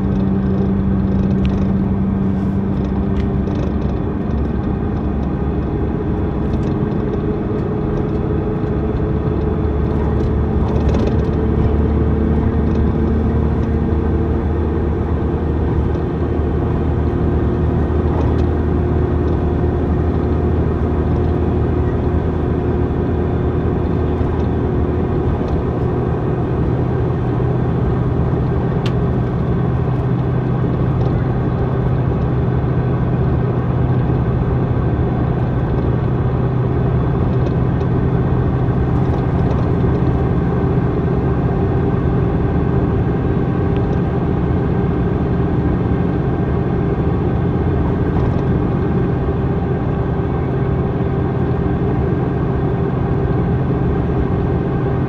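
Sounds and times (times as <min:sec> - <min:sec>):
bus diesel engine drone: 0:00.0 - 0:55.0.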